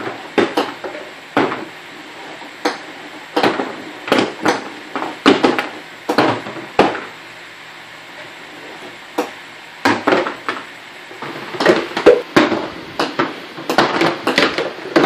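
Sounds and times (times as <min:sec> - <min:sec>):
golf balls clacking: 0:11.2 - 0:15.0.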